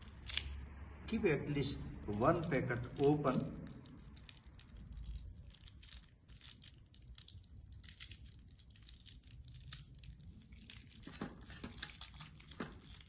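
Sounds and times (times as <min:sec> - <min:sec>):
packet crinkling and tearing: 0:00.0 - 0:00.6, 0:02.0 - 0:13.0.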